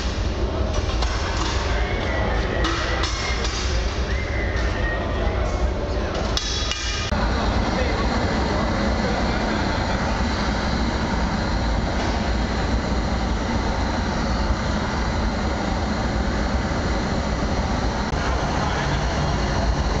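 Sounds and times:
gas torch burning: 6.4 - 20.0.

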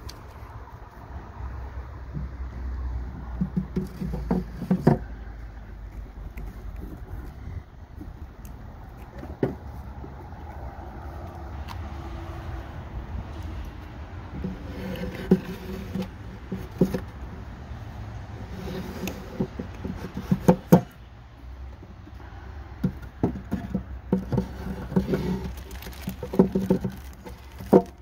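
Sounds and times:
wooden frames knocking: 3.1 - 5.2, 19.3 - 20.9, 22.8 - 28.0.

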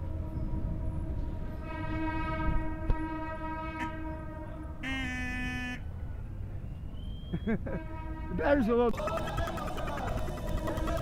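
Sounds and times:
horn blasts: 0.2 - 6.0, 7.8 - 8.6.

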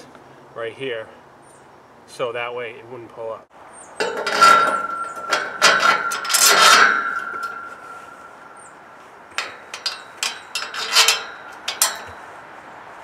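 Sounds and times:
metal rod scraping with ringing: 4.0 - 12.3
metallic clicks and clinks: 9.3 - 12.2.

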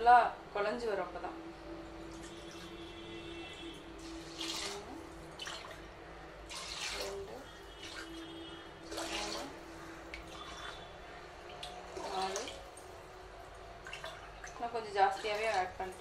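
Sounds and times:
water pouring into a pot: 3.5 - 5.8, 6.4 - 13.0, 13.6 - 16.0.

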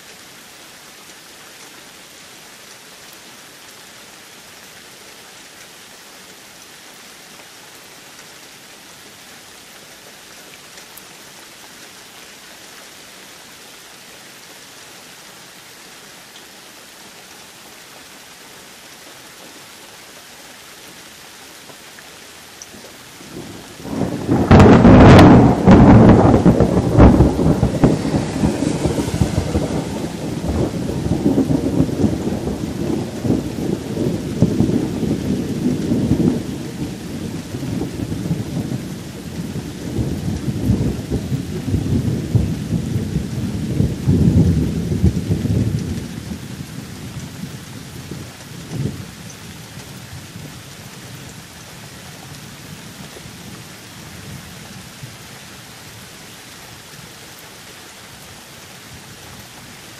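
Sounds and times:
steady rain: 0.0 - 59.9
thunder rumbling: 23.2 - 49.2.

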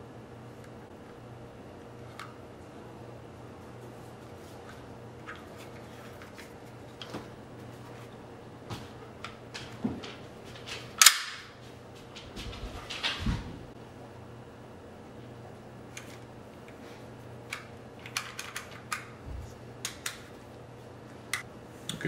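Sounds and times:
pistol handling clicks: 11.0 - 11.5.

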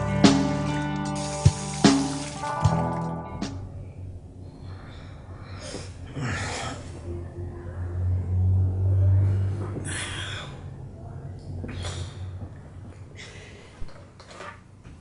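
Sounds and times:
low steady hum: 2.6 - 15.0
man breathing heavily: 4.2 - 7.1, 9.0 - 10.9, 11.6 - 13.9.

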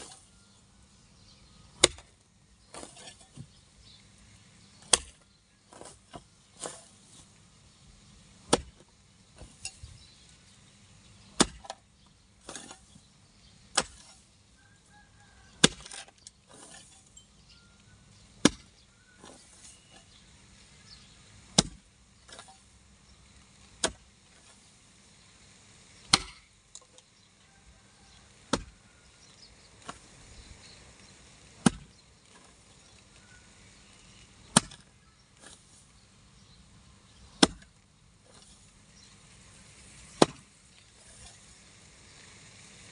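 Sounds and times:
hoe chopping into dry ground: 1.7 - 3.6, 4.8 - 7.3, 8.5 - 9.8, 11.4 - 11.8, 12.4 - 13.0, 13.7 - 14.2, 15.5 - 17.1, 18.4 - 20.2, 21.5 - 22.7, 23.8 - 24.7, 26.1 - 26.5, 28.5 - 29.0, 31.6 - 32.7, 34.4 - 36.0, 37.2 - 38.7, 39.8 - 41.4
faint knocks and scrapes: 2.7 - 3.6, 5.7 - 7.4.

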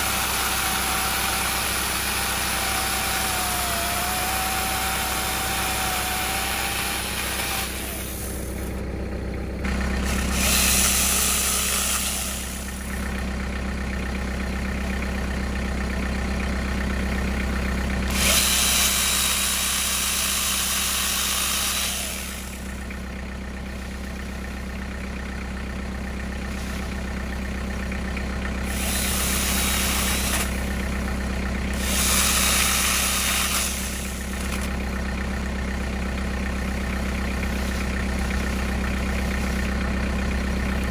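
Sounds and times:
chainsaw attachment cutting limbs: 0.0 - 8.5, 18.1 - 22.6, 28.7 - 30.6, 31.8 - 34.8
low engine idle: 0.0 - 40.9.

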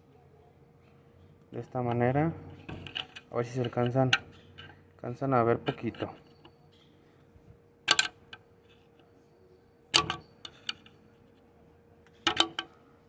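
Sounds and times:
sharp metal clicks: 7.9 - 8.4, 9.9 - 11.0.

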